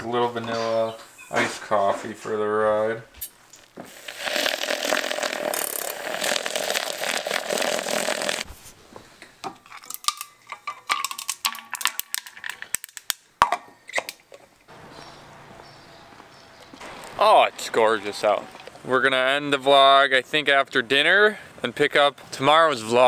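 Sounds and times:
milk frother whirring: 3.9 - 8.5
ice cubes clinking: 4.0 - 8.4, 9.7 - 13.1.

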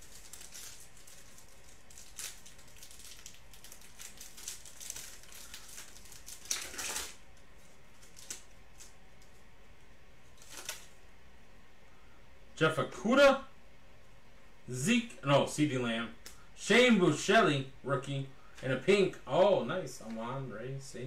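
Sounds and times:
foil wrapper tearing and crinkling: 0.0 - 9.4, 10.3 - 11.0.

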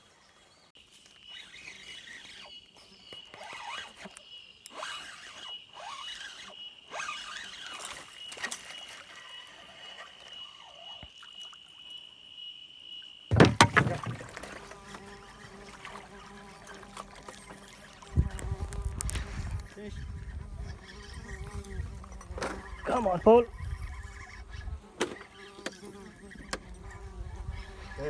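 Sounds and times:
insect chirping calls: 0.8 - 28.0
high-pitched insect drone: 1.1 - 13.3
loud thump and handling noise: 13.3 - 14.6.

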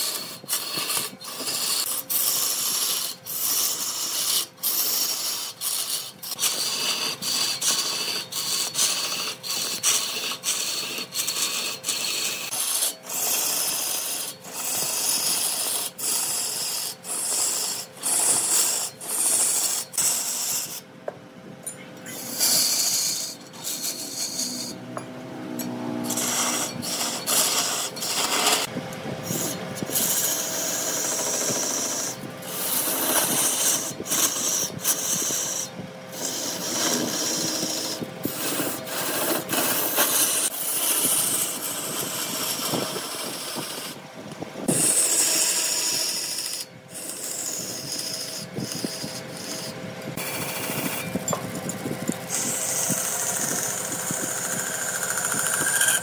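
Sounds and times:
faint lathe hum: 0.0 - 56.0
tool scraping spinning wood: 0.0 - 56.0.

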